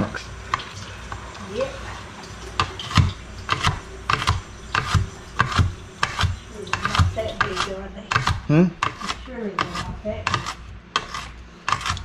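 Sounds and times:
knife chopping on plastic board: 2.6 - 12.0.

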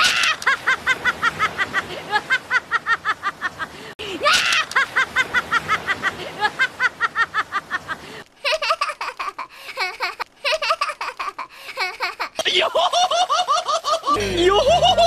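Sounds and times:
cartoon voice laughing: 8.5 - 15.0.

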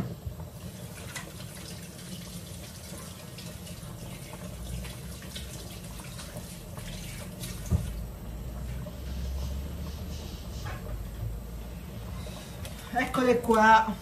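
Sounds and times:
tap running into a sink: 7.4 - 8.0.

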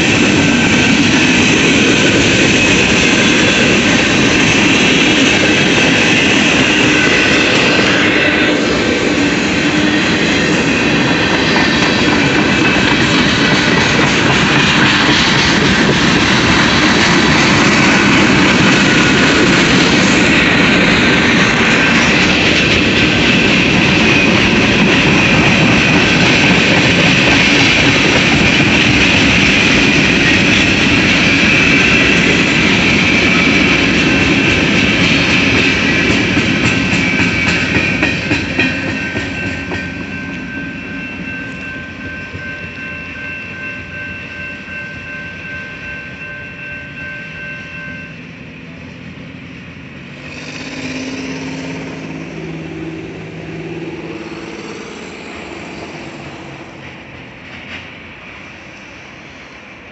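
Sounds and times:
wheel and rail clatter: 0.0 - 43.5
thin ringing from train wheels: 0.0 - 59.6.

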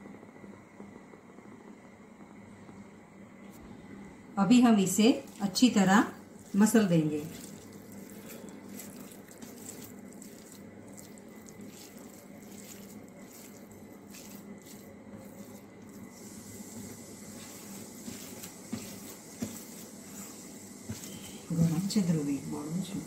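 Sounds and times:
hands kneading wet cheese: 4.9 - 23.0.

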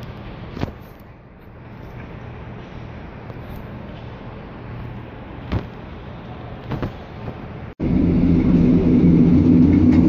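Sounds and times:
train diesel engine drone: 0.0 - 10.0.

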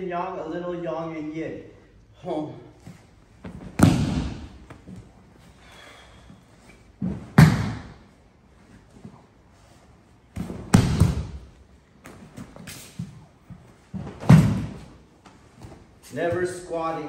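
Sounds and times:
body thudding on padded mats: 3.4 - 5.2, 7.0 - 8.1, 10.3 - 12.7, 13.5 - 16.0.

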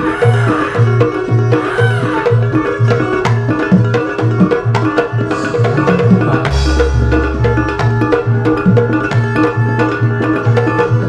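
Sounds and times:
violin melody: 0.0 - 10.8
hand drums beating: 0.0 - 11.0
low bass pulse: 6.2 - 8.5
deep sustained low note: 6.3 - 8.5.

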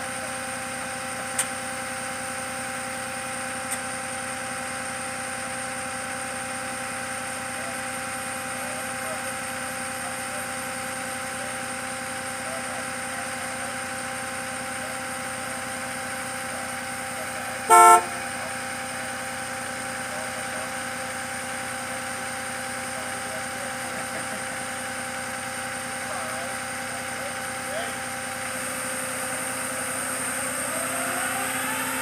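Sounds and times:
truck engine idling: 0.0 - 32.0
vehicle horn toot: 17.6 - 18.4.

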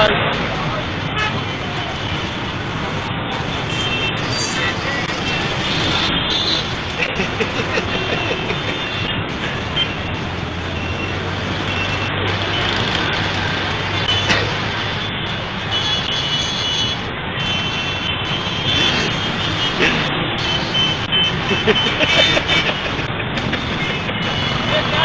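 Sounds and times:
road traffic: 0.0 - 25.0.

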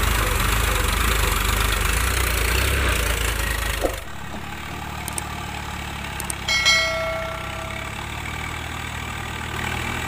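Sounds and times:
tractor diesel engine idling: 0.0 - 10.0
metallic clang: 6.5 - 8.4.

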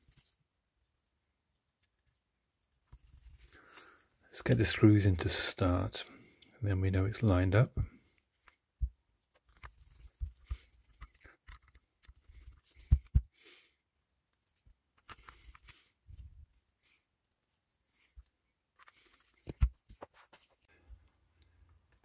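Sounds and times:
scrapes and rustles: 14.3 - 20.7.

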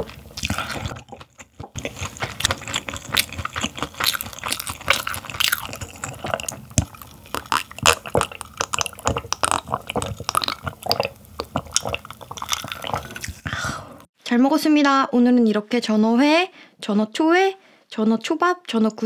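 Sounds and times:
gulping and swallowing a drink: 0.0 - 13.6.

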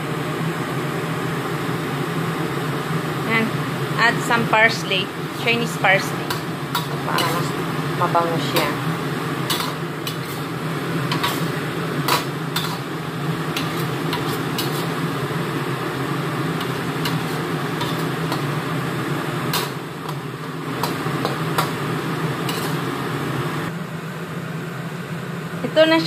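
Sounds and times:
steady hum: 0.0 - 26.0
metal spatula scraping a wok: 5.3 - 7.6, 9.4 - 15.2, 16.5 - 18.6, 19.5 - 22.9.

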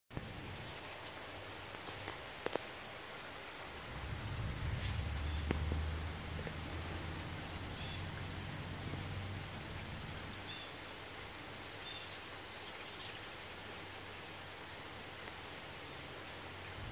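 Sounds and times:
hummingbird wings humming: 0.1 - 16.9
rain with sharp drips: 0.1 - 16.9
hummingbird chips: 0.2 - 8.0.

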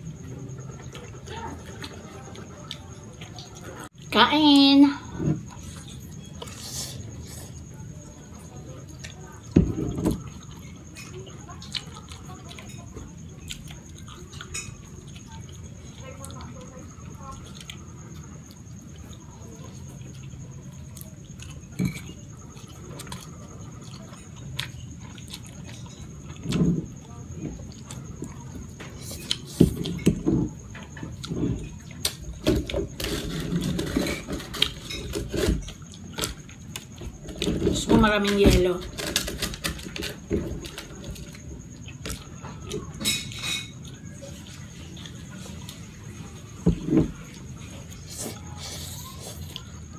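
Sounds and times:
wet chewing and slurping: 10.1 - 37.8, 38.9 - 49.9.

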